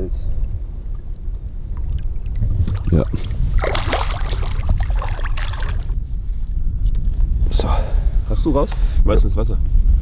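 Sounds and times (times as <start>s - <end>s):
wind rumble on microphone: 0.0s - 10.0s
fish splashing water: 1.8s - 5.9s.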